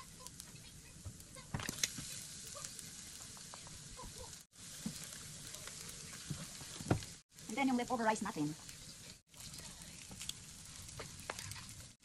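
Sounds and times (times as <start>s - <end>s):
garlic sizzling in hot oil: 0.0s - 12.0s
spatula clicking and scraping: 8.6s - 12.0s.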